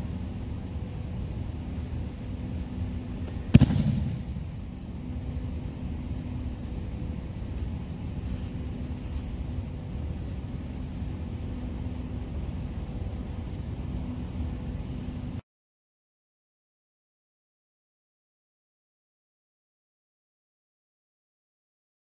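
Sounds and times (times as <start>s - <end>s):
steady low hum: 0.0s - 15.4s.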